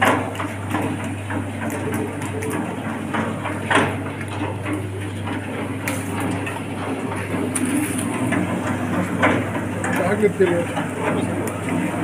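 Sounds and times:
low motor hum: 0.0 - 12.0.

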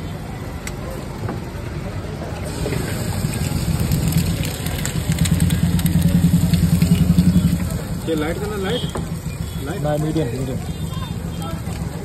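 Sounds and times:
eggs frying in oil: 2.4 - 12.0
low engine-like rumble: 2.4 - 12.0.

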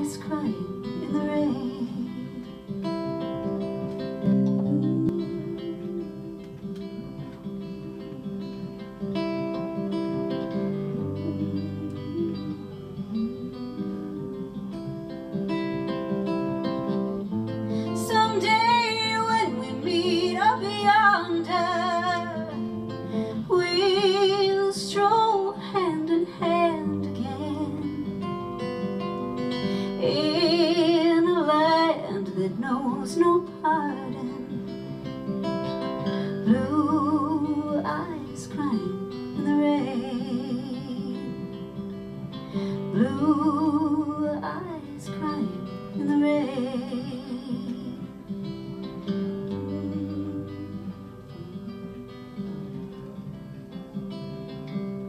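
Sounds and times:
woman singing with vibrato: 0.0 - 2.6, 4.4 - 8.6, 10.2 - 15.1, 17.8 - 28.4, 29.7 - 34.9, 36.2 - 41.7, 42.8 - 48.3, 49.4 - 51.4
acoustic guitar strumming: 0.0 - 55.0.

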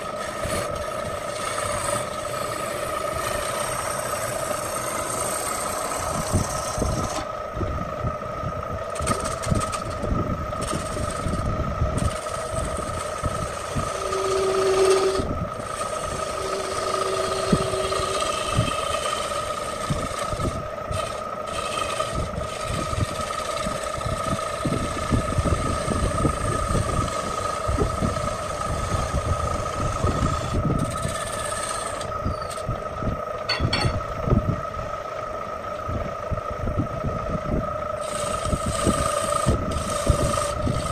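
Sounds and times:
tool grinding spinning wood: 0.0 - 34.7, 37.3 - 40.9
lathe motor hum: 0.0 - 40.9.

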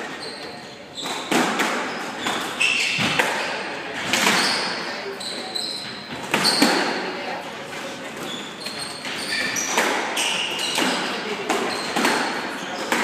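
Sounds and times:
sneakers squeaking on wood: 0.0 - 7.1, 7.9 - 13.0.

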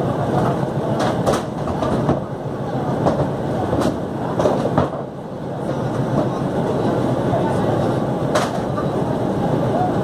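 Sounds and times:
mechanical rumble and rattle: 0.0 - 10.0.

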